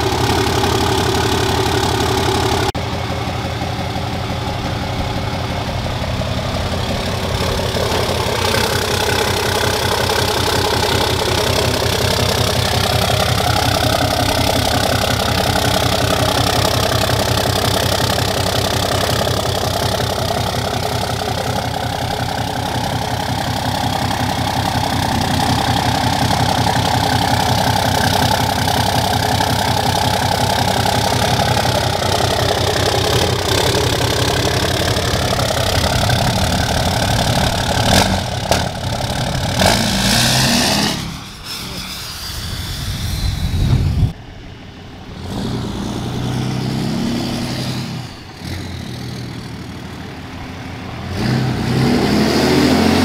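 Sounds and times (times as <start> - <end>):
diesel engine idling: 0.0 - 53.0.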